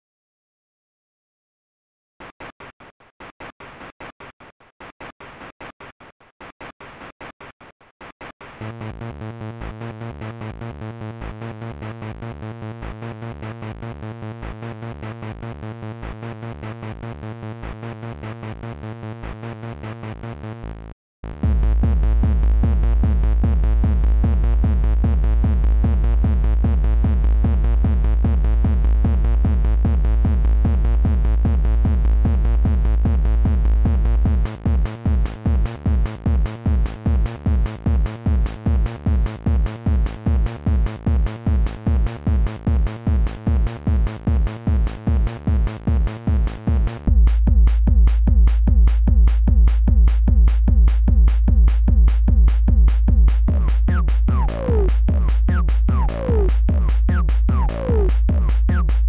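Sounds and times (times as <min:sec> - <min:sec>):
heavy bass pulse: 0:21.2 - 0:59.0
electronic music with pulsing beat: 0:21.3 - 0:59.0.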